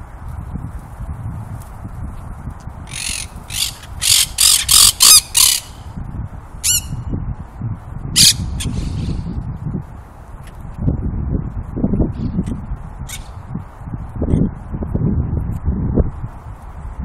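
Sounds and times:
parakeets squawking: 0:02.9 - 0:05.8, 0:06.6 - 0:06.9, 0:08.2 - 0:09.1.

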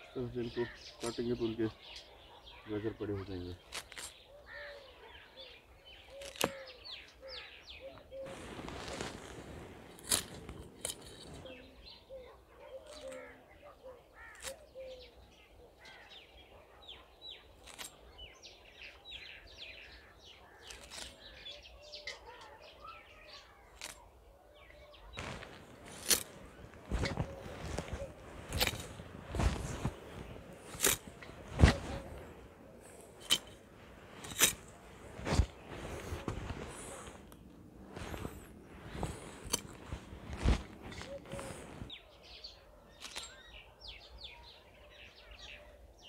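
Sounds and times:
small birds chirping: 0:00.0 - 0:46.0
blade crunching through carrot tops: 0:03.6 - 0:04.2, 0:06.2 - 0:06.6, 0:08.5 - 0:11.4, 0:25.2 - 0:37.4, 0:38.0 - 0:41.9
leaves rustling: 0:08.2 - 0:12.0, 0:25.2 - 0:42.1.

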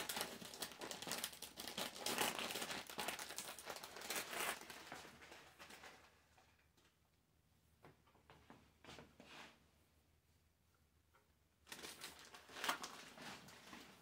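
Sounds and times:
material rustling and crinkling: 0:00.0 - 0:07.0, 0:11.6 - 0:14.0.

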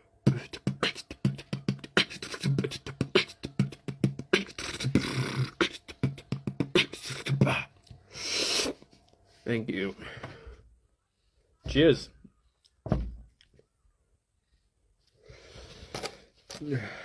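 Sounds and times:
man making vocal sounds: 0:00.2 - 0:07.9
breathy hisses: 0:08.1 - 0:08.8.

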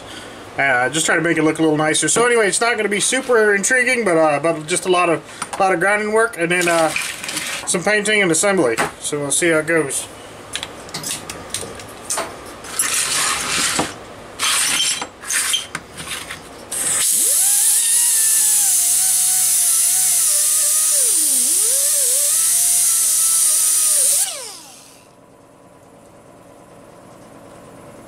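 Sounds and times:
pneumatic grinder whining: 0:16.7 - 0:25.1.

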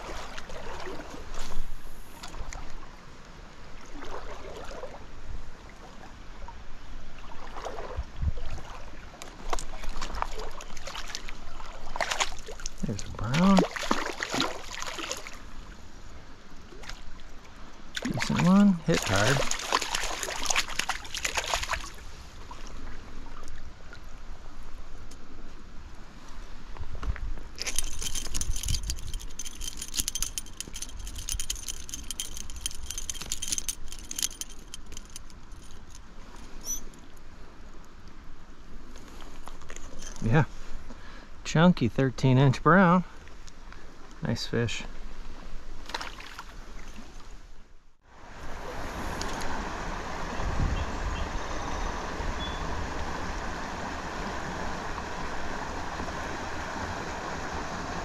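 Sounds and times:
stream water running: 0:00.0 - 0:41.6
splashes and knocks: 0:07.4 - 0:15.4, 0:18.0 - 0:22.0
fishing reel clicking: 0:27.6 - 0:36.0
short high squeak: 0:36.5 - 0:37.0.

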